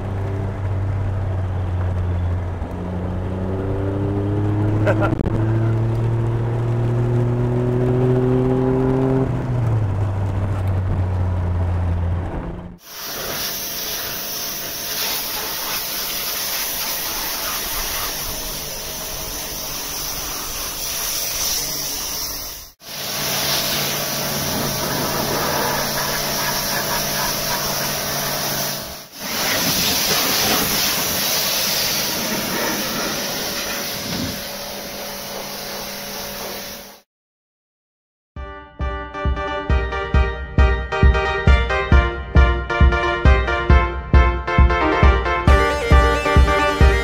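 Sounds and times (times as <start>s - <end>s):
car engine running: 0.0s - 12.8s, 22.8s - 29.1s
wind: 0.0s - 37.0s
road hiss: 12.8s - 37.0s.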